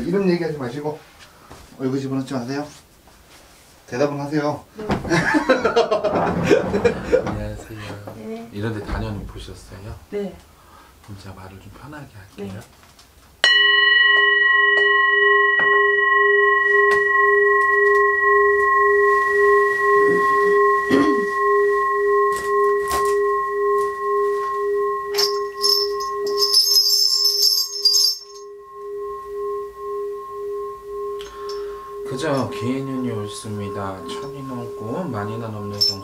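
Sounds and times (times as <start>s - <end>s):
singing bowl struck and ringing: 13.4s - 36.0s
high metallic jingle: 14.6s - 36.0s.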